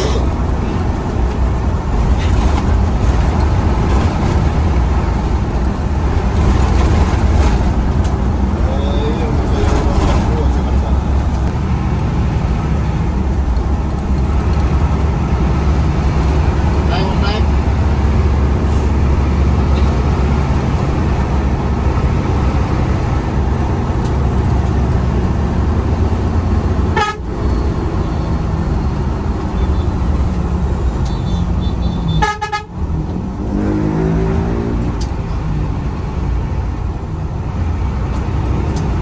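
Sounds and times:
bus engine and road drone: 0:00.0 - 0:39.0
bus horn: 0:26.9 - 0:28.4, 0:30.9 - 0:32.8.

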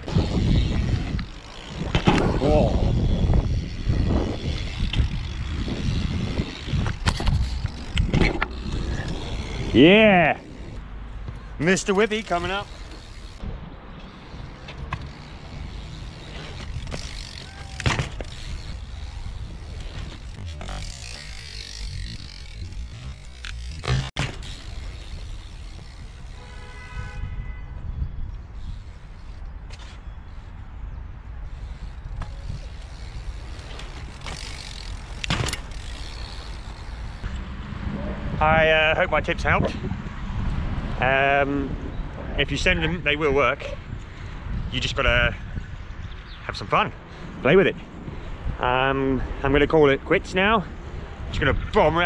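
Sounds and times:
bike landing clatter: 0:00.0 - 0:10.8, 0:14.9 - 0:26.3, 0:32.1 - 0:37.2
bike parts rattling: 0:00.0 - 0:10.8, 0:11.5 - 0:13.4, 0:14.0 - 0:26.5, 0:31.4 - 0:37.3
bike tyres rolling on concrete: 0:00.0 - 0:37.4
bike landing knock: 0:01.7 - 0:02.4, 0:16.5 - 0:19.1, 0:19.7 - 0:25.2, 0:33.8 - 0:36.1.

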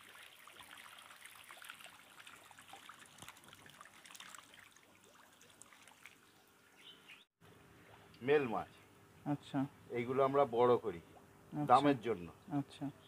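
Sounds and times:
water splashing and dripping: 0:00.0 - 0:06.8.

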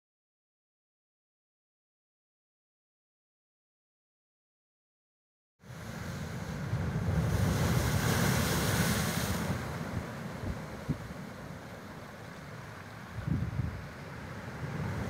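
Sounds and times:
sea waves foaming among boulders: 0:05.7 - 0:15.0
wind rumbling on microphone: 0:06.0 - 0:11.9, 0:12.5 - 0:15.0.

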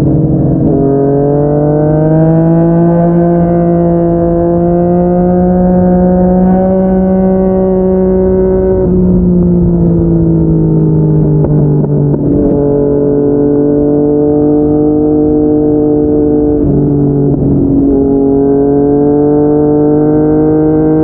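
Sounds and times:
motorcycle engine pulling under throttle: 0:00.0 - 0:21.0.

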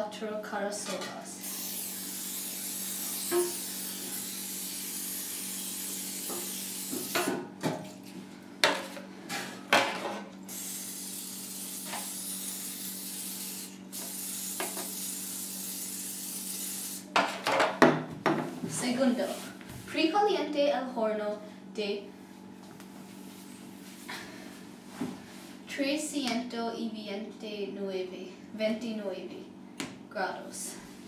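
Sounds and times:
aerosol spray hissing: 0:01.4 - 0:07.1, 0:10.5 - 0:17.1.

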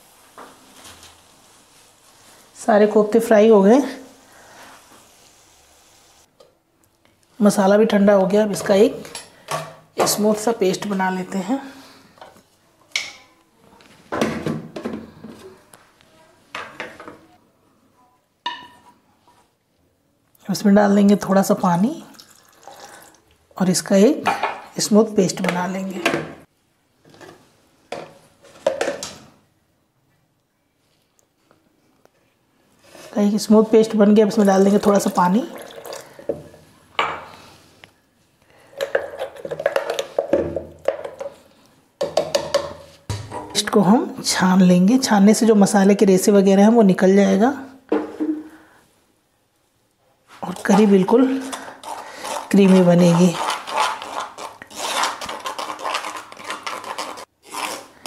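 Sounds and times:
spoon stirring in plastic jar: 0:50.4 - 0:57.8.

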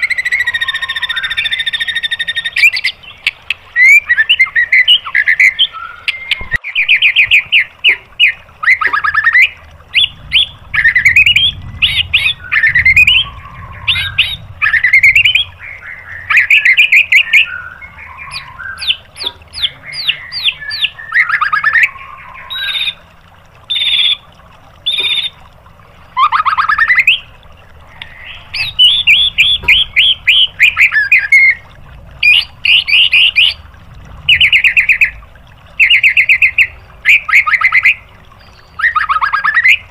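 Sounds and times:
songbird singing varied song: 0:00.1 - 0:23.0.

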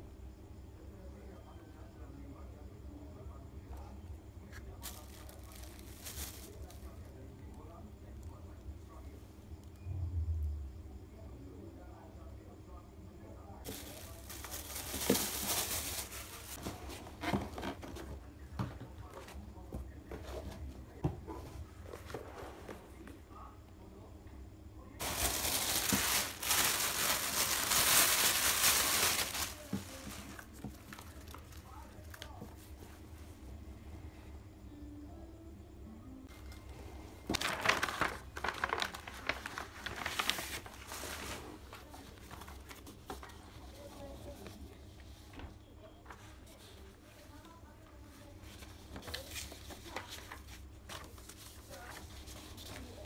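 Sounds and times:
low room hum: 0:00.0 - 0:53.0
tissue paper rustling: 0:04.8 - 0:06.9, 0:13.6 - 0:16.9, 0:25.0 - 0:31.6, 0:37.3 - 0:44.5, 0:48.4 - 0:53.0.

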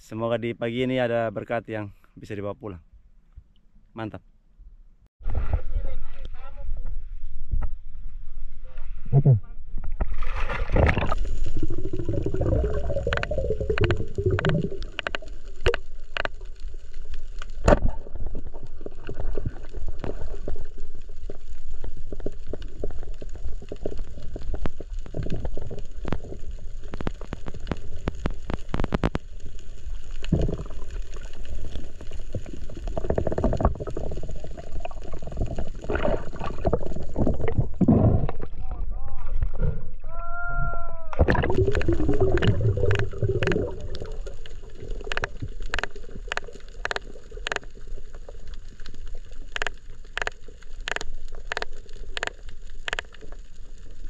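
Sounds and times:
muffled underwater rumble: 0:05.2 - 0:54.0
water gurgling: 0:09.1 - 0:40.2, 0:41.1 - 0:54.0
underwater clicks and knocks: 0:12.0 - 0:16.5, 0:33.0 - 0:34.3, 0:41.1 - 0:47.8, 0:49.4 - 0:53.4.

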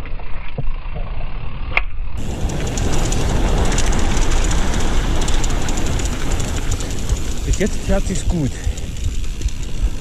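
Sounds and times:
bike clatter: 0:02.2 - 0:10.0
tyre rumble: 0:02.2 - 0:10.0
wind on camera: 0:02.2 - 0:10.0.

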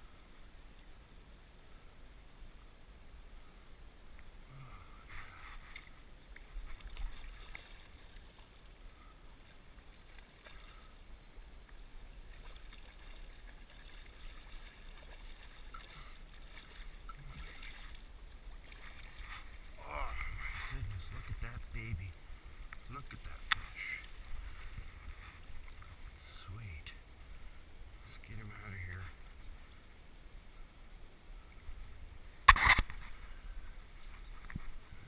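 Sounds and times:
water splashing: 0:04.9 - 0:26.6
wind rumble on microphone: 0:19.3 - 0:22.6.

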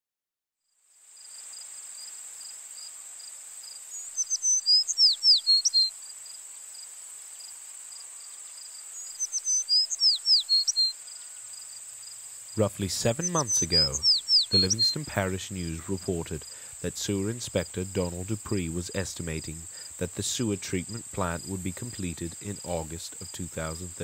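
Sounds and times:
songbird singing: 0:03.9 - 0:06.0, 0:08.3 - 0:24.0
high-pitched insect drone: 0:08.2 - 0:24.0.

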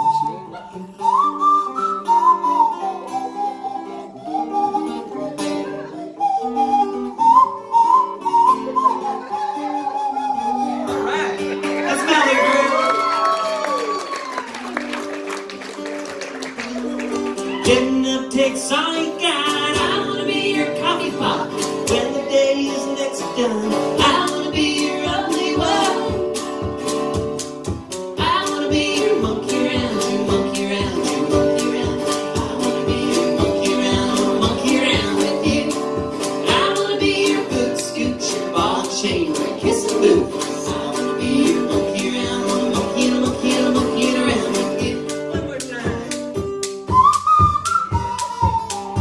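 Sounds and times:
acoustic guitar strumming: 0:14.7 - 0:49.0
woman singing: 0:17.4 - 0:26.4, 0:28.1 - 0:45.5.

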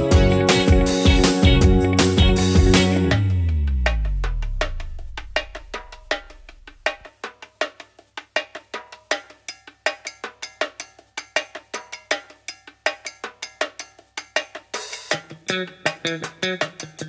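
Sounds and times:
light percussive background music: 0:00.0 - 0:17.0
low bass tone: 0:01.4 - 0:06.9.

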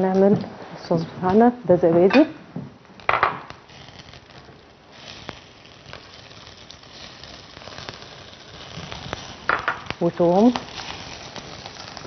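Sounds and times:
meatballs sizzling in a pan: 0:03.0 - 0:12.0.

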